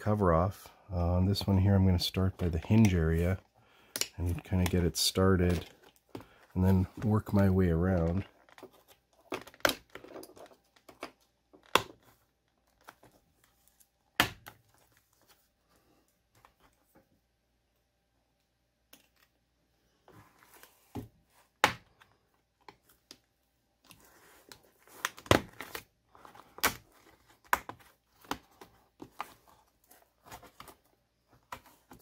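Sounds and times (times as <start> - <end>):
plastic clips clicking and snapping: 3.9 - 4.7
plastic scraping and crackling: 4.0 - 13.7.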